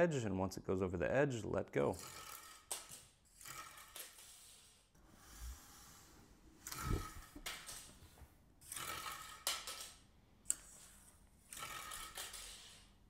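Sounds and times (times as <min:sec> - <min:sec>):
plastic propeller whirring: 0:06.6 - 0:08.0.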